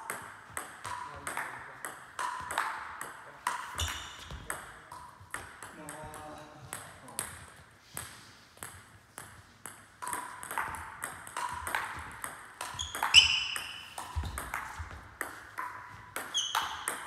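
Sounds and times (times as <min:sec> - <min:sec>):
table tennis ball hits: 0:00.0 - 0:17.0.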